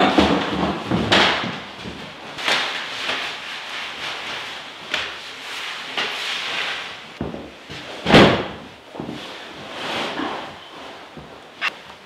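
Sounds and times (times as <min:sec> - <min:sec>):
mattress thumping onto slats: 0:07.2 - 0:09.3.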